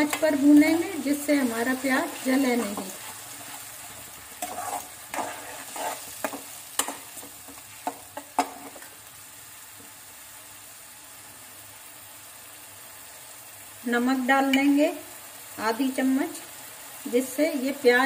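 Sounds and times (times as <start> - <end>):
steel spoon scraping a pan: 0.0 - 8.9
onion paste sizzling in oil: 0.0 - 18.0.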